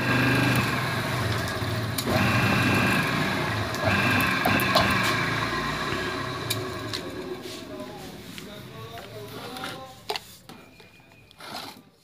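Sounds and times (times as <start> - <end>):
electric motor humming: 0.0 - 7.4.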